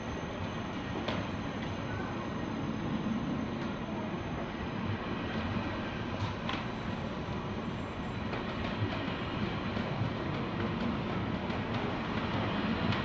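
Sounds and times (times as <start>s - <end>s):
train wheels rumbling: 0.0s - 13.0s.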